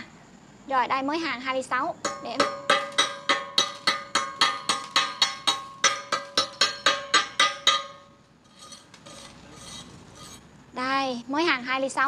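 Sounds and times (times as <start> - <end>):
hammer tapping on steel plate: 2.0 - 8.1.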